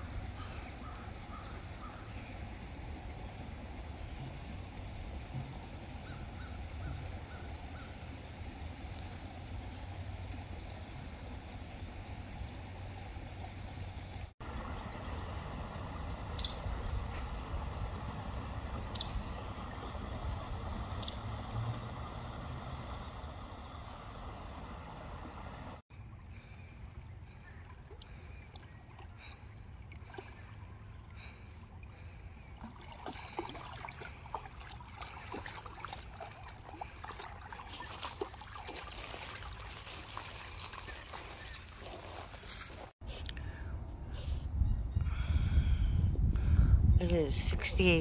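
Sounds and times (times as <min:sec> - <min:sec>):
creek trickling over cascade: 0:00.0 - 0:43.0
dog paws splashing in water: 0:32.0 - 0:43.0.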